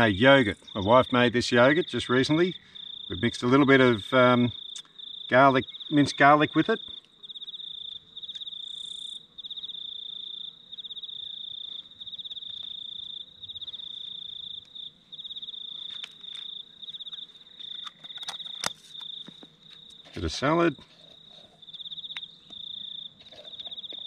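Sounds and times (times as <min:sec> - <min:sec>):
cricket chirping: 0:00.0 - 0:24.0.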